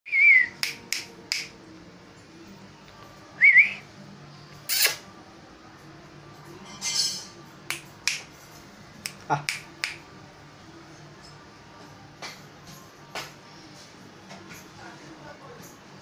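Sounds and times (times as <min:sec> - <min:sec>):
person whistling calls: 0:00.1 - 0:00.7, 0:03.4 - 0:03.8.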